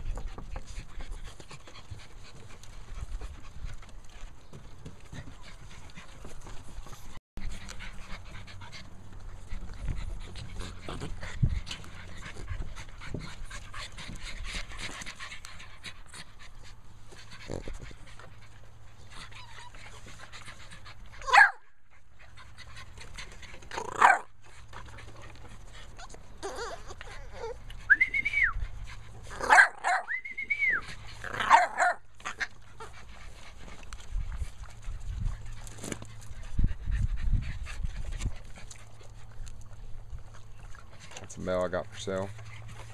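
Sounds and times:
puppies panting: 0.0s - 42.9s
puppies yelping and whining: 3.8s - 42.9s.

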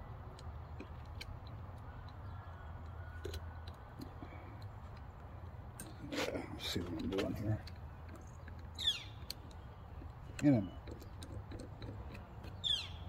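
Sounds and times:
small parts clicking and tapping: 6.9s - 12.6s.

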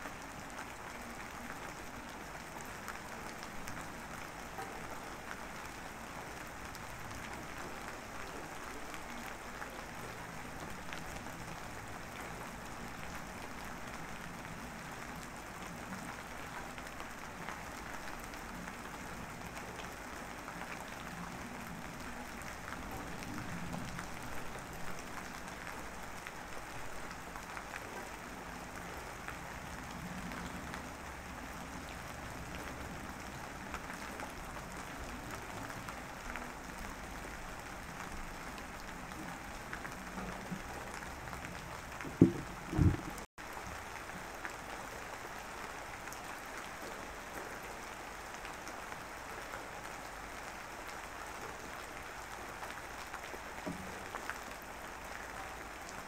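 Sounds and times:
faint crackling: 42.0s - 43.3s
short low thumps: 42.1s - 43.2s.

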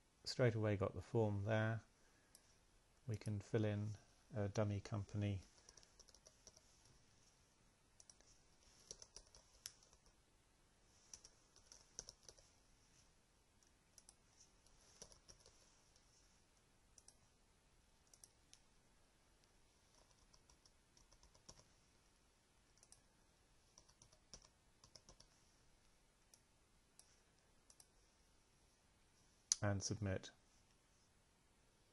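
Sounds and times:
keyboard typing: 5.4s - 6.7s, 8.0s - 10.2s, 11.1s - 12.5s, 14.0s - 16.1s, 18.0s - 18.4s, 19.9s - 21.7s, 23.7s - 25.3s.

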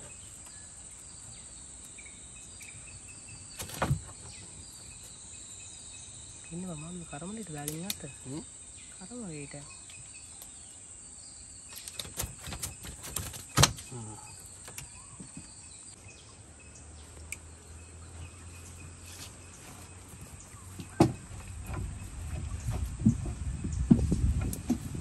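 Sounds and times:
clicks and knocks in wooden canoe: 3.3s - 5.2s, 11.7s - 15.7s, 19.2s - 25.0s.

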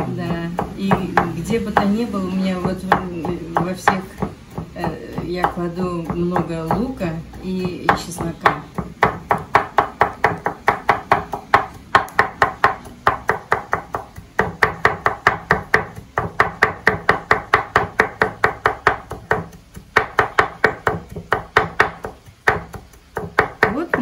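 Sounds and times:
knife chopping on cutting board: 0.0s - 24.0s.

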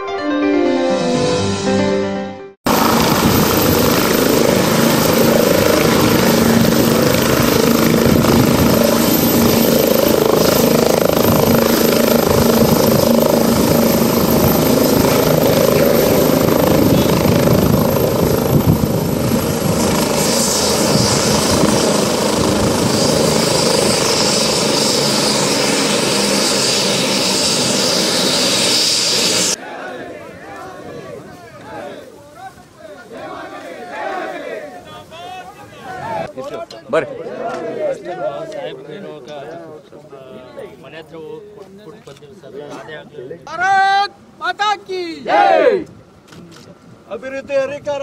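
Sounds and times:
helicopter rotor and turbine: 2.7s - 29.6s.

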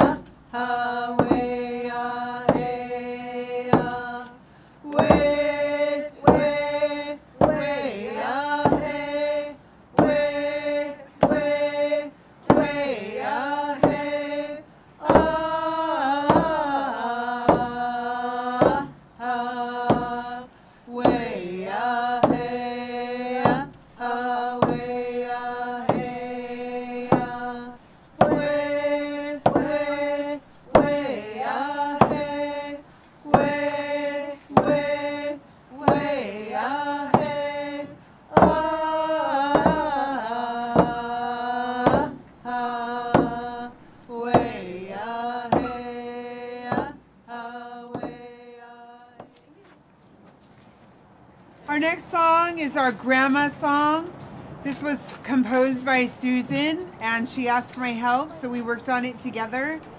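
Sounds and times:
voices singing and chanting: 0.0s - 50.5s, 51.6s - 59.9s
frame drum beat: 4.9s - 6.7s, 15.0s - 16.8s, 17.4s - 18.9s, 19.5s - 20.3s, 20.9s - 35.1s, 35.8s - 40.0s, 44.2s - 44.8s, 45.5s - 46.0s.

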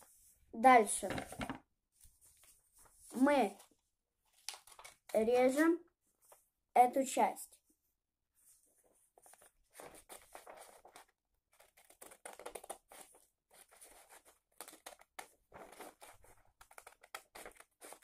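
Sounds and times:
scissors snipping paper: 16.6s - 18.0s.

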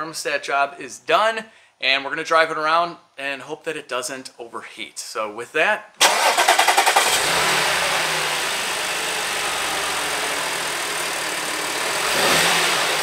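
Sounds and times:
car engine idling: 6.0s - 13.0s.

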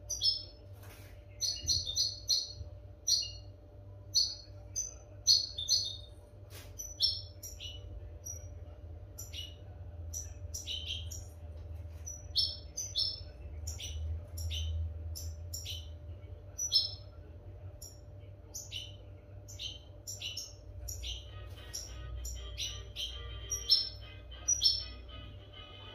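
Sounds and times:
steady low hum: 0.0s - 25.9s
goldfinch twittering song: 0.1s - 0.6s, 1.4s - 3.5s, 4.1s - 6.1s, 6.8s - 8.5s, 12.0s - 15.9s, 18.6s - 25.1s.

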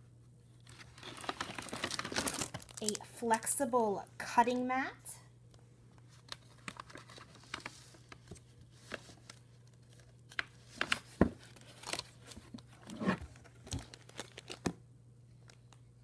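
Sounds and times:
plastic packaging crinkling: 0.7s - 3.2s, 6.2s - 14.7s.

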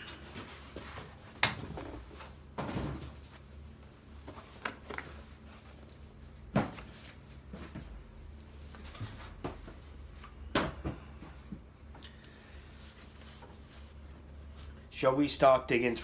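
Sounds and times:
objects knocking and clunking: 8.9s - 11.7s.

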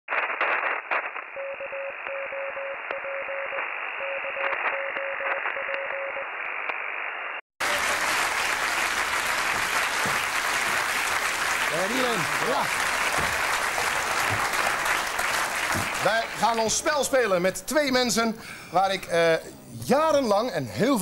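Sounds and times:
crackling radio static: 0.1s - 8.0s
studio audience applauding: 7.6s - 17.2s.

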